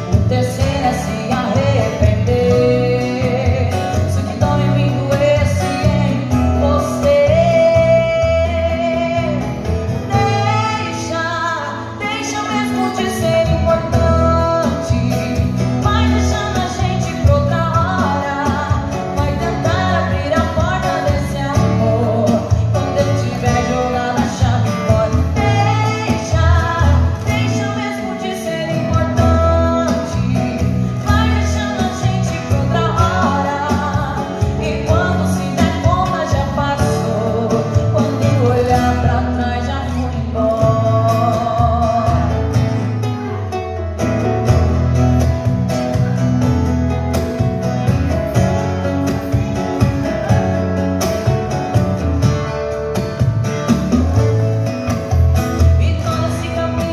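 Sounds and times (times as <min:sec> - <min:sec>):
woman singing: 0:00.0 - 0:43.4, 0:55.4 - 0:56.9
acoustic guitar: 0:00.0 - 0:56.9.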